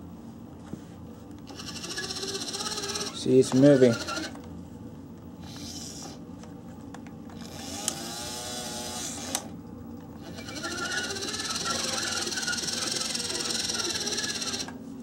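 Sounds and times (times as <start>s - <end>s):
toy truck motor whirring: 1.5s - 4.4s, 5.4s - 6.2s, 7.4s - 9.5s, 10.2s - 14.8s.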